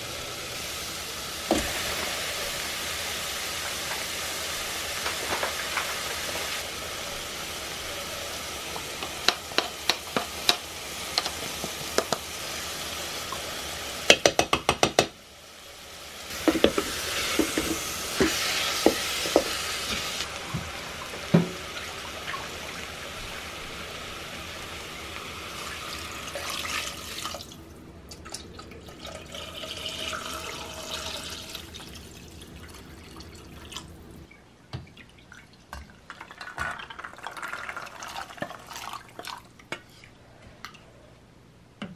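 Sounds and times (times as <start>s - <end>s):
vegetables sizzling in a pot: 0.0s - 27.6s
wooden spoon knocking against pot: 14.1s - 15.1s
water poured into pot: 36.1s - 39.5s.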